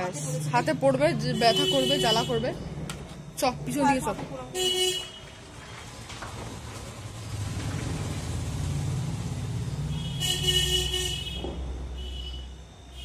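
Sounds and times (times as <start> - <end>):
vehicle horn: 1.3 - 2.5, 4.6 - 5.3, 9.9 - 13.0
vehicle engine rumble: 5.8 - 12.0.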